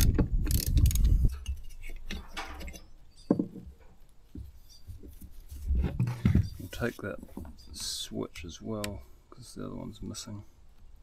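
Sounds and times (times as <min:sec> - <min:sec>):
rustling: 0:00.5 - 0:08.6.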